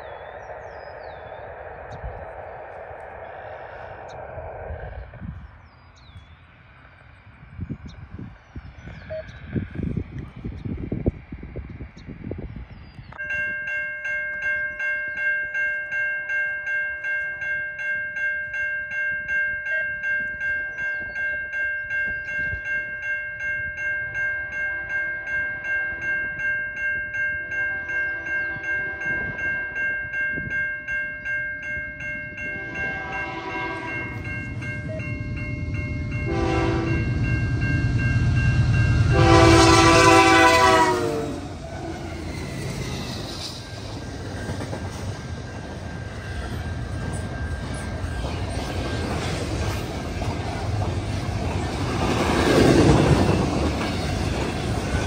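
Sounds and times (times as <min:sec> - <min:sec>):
train engine and wheel rumble: 0:00.0 - 0:55.0
crossing bell ringing: 0:13.2 - 0:55.0
locomotive air horn blasts: 0:32.5 - 0:34.2, 0:36.2 - 0:37.2, 0:39.0 - 0:42.0.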